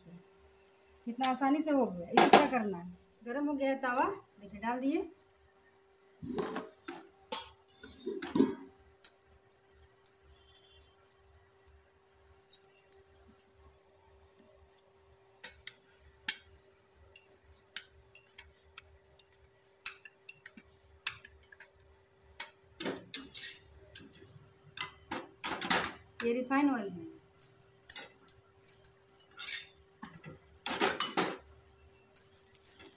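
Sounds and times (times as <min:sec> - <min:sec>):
glass bangles clinking: 0:03.2 - 0:14.6, 0:15.4 - 0:32.9.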